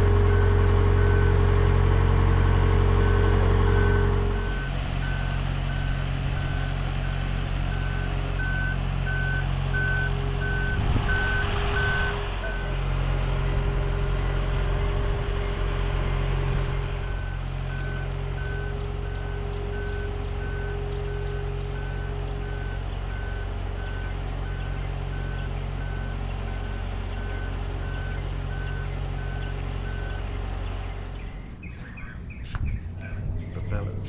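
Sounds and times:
engine running: 0:00.0 - 0:34.0
backup alarm beeping: 0:07.7 - 0:12.8.

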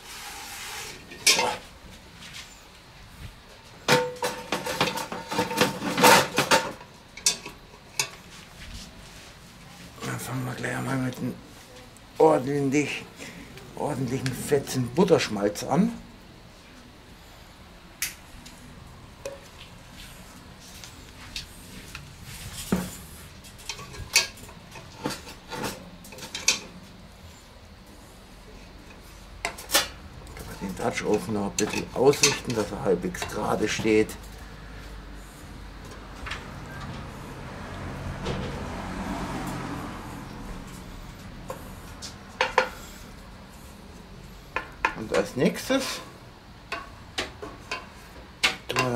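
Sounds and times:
wooden spatula scraping a pot: 0:00.0 - 0:01.6
cast iron pot clanking on metal: 0:03.9 - 0:08.2.

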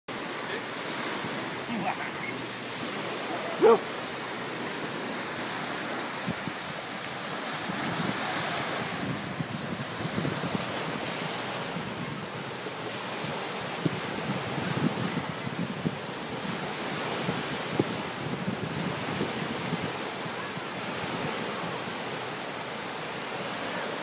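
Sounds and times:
small waves breaking on shore: 0:00.1 - 0:24.0
wind buffeting microphone: 0:00.8 - 0:22.9
dog barking: 0:03.2 - 0:04.0.

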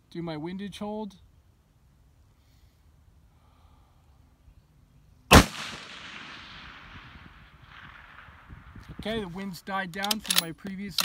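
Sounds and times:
rifle shot with echo: 0:05.3 - 0:08.8.

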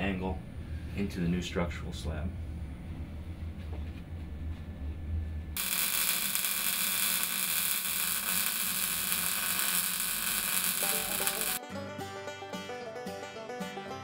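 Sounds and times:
welder hissing: 0:05.6 - 0:11.6
music: 0:10.8 - 0:14.0.

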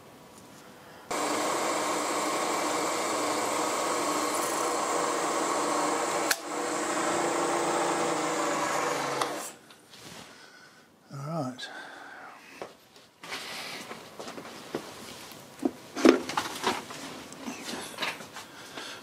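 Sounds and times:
milling machine drilling steel: 0:01.1 - 0:09.6.

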